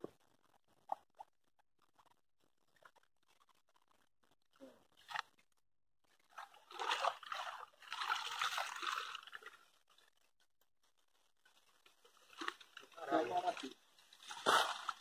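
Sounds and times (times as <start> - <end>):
water and mud sloshing: 6.1 - 9.8, 11.5 - 15.0
sharp splash: 6.4 - 9.4, 14.2 - 15.0.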